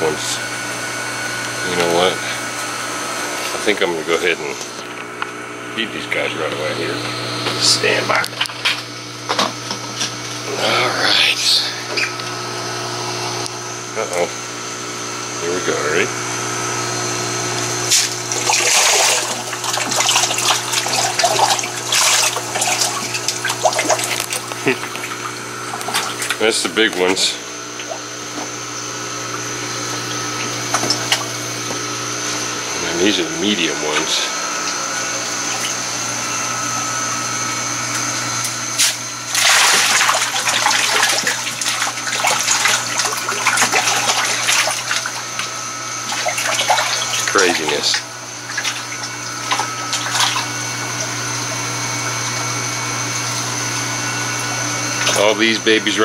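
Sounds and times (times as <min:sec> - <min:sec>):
steady low hum: 0:00.0 - 0:56.0
water splashing from pipe into tank: 0:17.6 - 0:27.1, 0:27.7 - 0:31.4, 0:38.0 - 0:55.6
fish splashing at water surface: 0:17.9 - 0:26.4, 0:38.8 - 0:51.5.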